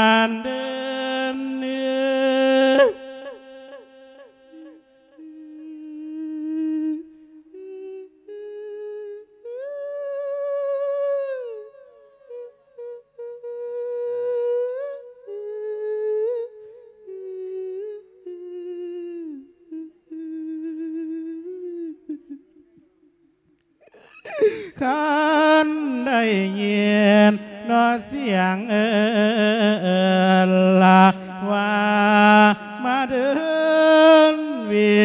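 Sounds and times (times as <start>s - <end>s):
man chanting into a microphone: 0.0s - 16.4s, 24.7s - 35.0s
breaths between phrases: 23.8s - 24.8s.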